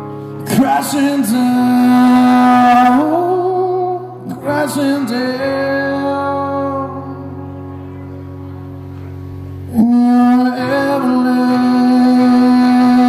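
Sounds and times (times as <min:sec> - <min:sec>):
man singing long notes: 0:00.0 - 0:07.6, 0:09.7 - 0:13.0.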